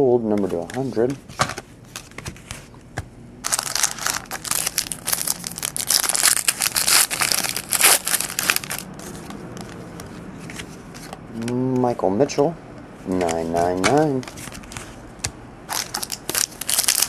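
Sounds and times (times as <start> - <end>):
wrapper being torn and crinkled: 3.4 - 8.9, 15.7 - 17.0.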